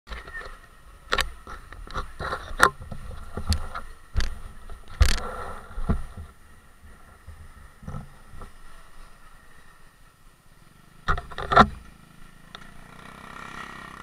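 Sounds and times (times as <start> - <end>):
camera handling knocks and clatter: 1.1 - 5.2.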